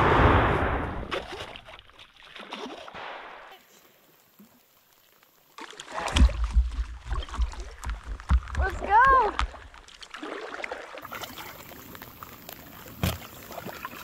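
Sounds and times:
low rumble: 0:00.0 - 0:01.1
paddle strokes in water: 0:05.6 - 0:14.0.

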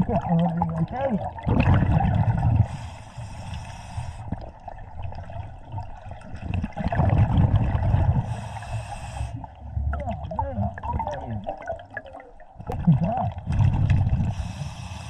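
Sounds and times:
bubbling of exhaled air: 0:00.0 - 0:15.0
regulator inhale hiss: 0:02.7 - 0:04.4, 0:08.2 - 0:09.5, 0:14.3 - 0:15.0.

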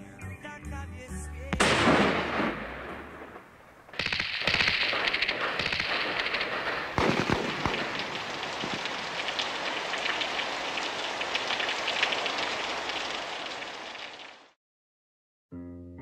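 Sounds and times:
rain hissing and pattering: 0:02.9 - 0:14.6.

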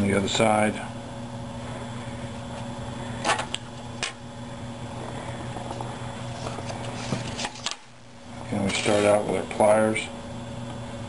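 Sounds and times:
fan humming: 0:00.0 - 0:11.0.

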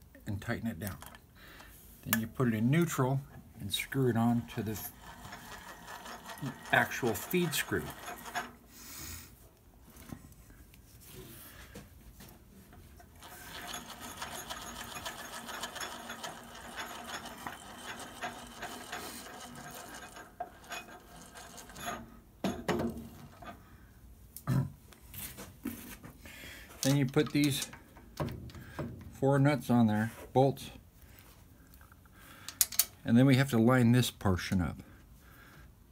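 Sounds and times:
metal gears fine rapid ticking: 0:04.4 - 0:08.6, 0:13.2 - 0:22.0.

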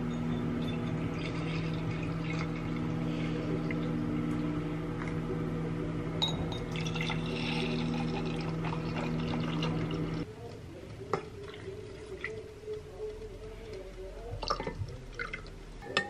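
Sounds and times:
coffee pouring into glass mugs: 0:00.0 - 0:05.3, 0:06.2 - 0:10.3, 0:13.7 - 0:16.0
coffee machine pump humming: 0:00.0 - 0:10.3.

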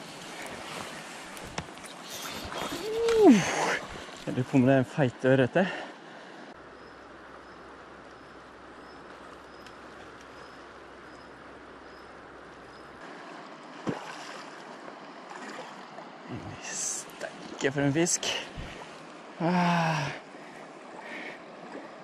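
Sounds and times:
river water rushing: 0:07.1 - 0:19.5
faint high ticks: 0:08.9 - 0:11.3.

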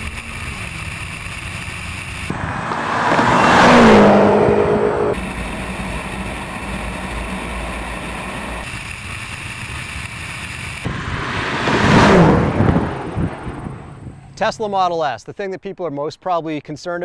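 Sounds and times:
wind and road rush: 0:00.0 - 0:08.9, 0:09.6 - 0:14.9
cars speeding past: 0:02.2 - 0:06.8, 0:10.8 - 0:14.5.

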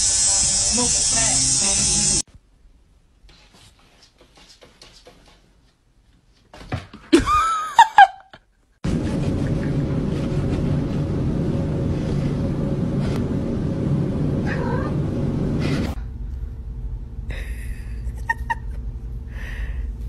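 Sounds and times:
electric toothbrush buzzing: 0:00.0 - 0:02.3
steady noisy hum: 0:08.8 - 0:20.0.

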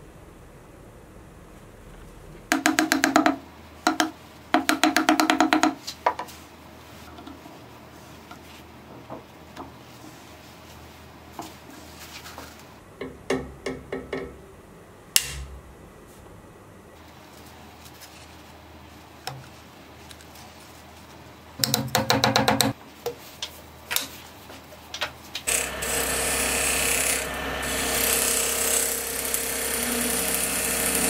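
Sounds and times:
hammer tapping hollow wooden vessel: 0:02.5 - 0:06.3.

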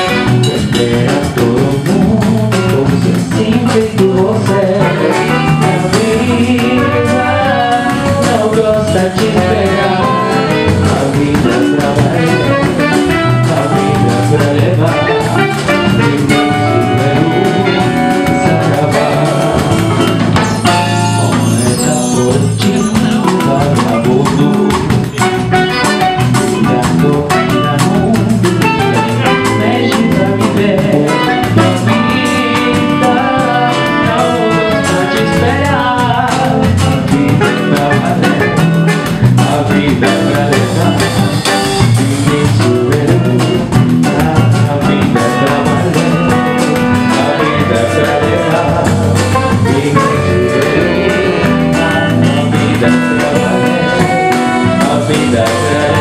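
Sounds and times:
saxophones: 0:00.0 - 0:01.2, 0:04.7 - 0:08.5, 0:09.6 - 0:11.2, 0:12.1 - 0:24.5, 0:25.1 - 0:36.0, 0:45.2 - 0:56.0
drum kit: 0:00.0 - 0:56.0
electric bass: 0:00.0 - 0:56.0
guitar: 0:00.0 - 0:56.0
percussion: 0:00.0 - 0:56.0.

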